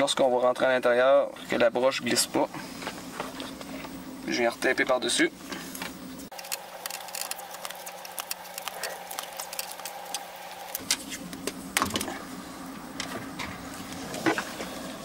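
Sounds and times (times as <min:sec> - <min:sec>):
faint steady hum: 0:00.0 - 0:15.0
tape crackling off roll: 0:06.3 - 0:12.1.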